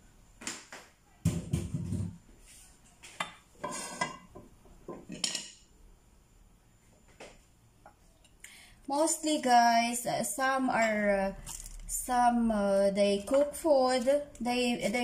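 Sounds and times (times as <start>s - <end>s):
pots clattering on stove: 3.2s - 5.6s.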